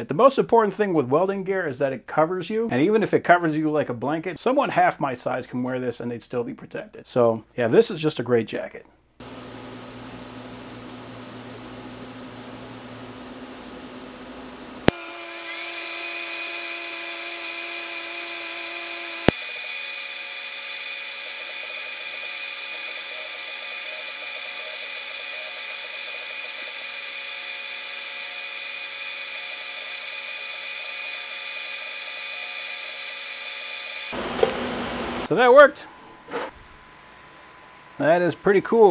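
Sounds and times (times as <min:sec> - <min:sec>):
welding arc hissing and whining: 0:09.3 - 0:35.4.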